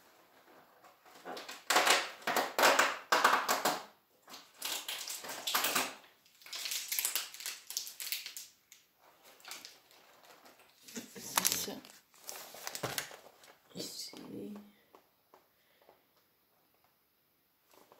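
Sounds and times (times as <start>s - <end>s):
packaging torn and crinkled: 4.4s - 13.5s.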